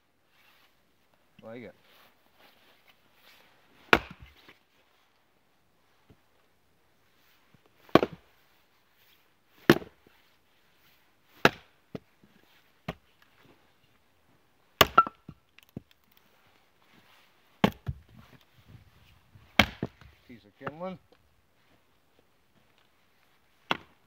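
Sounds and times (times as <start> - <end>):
axe chopping wood: 3.9 - 4.3, 7.8 - 8.2, 9.6 - 10.0, 11.4 - 12.0, 14.8 - 15.9, 17.6 - 18.0, 19.5 - 20.8, 23.6 - 24.0.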